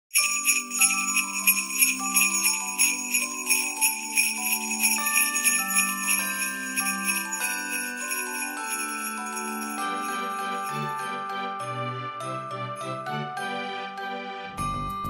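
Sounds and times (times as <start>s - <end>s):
sleigh bells shaking: 0.1s - 11.4s.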